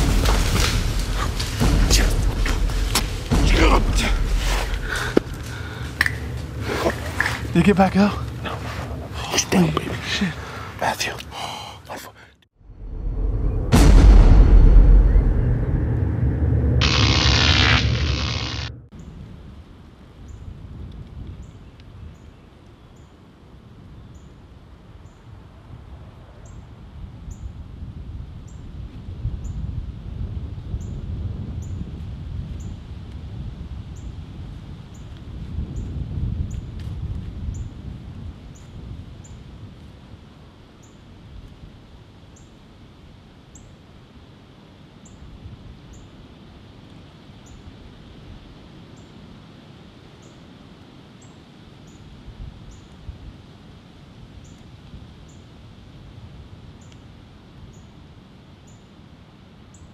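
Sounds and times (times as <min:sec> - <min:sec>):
low outdoor rumble: 0:00.0 - 0:10.9, 0:12.6 - 0:21.1
wind rumble on microphone: 0:18.1 - 0:43.3, 0:51.9 - 0:58.4.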